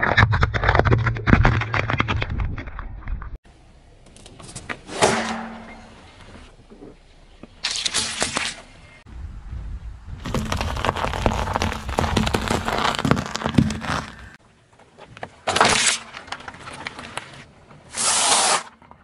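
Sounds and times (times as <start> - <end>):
low tyre rumble: 8.6 - 14.4
loud crushing bursts: 10.2 - 14.4
tyre crushing small eggs: 10.2 - 14.4.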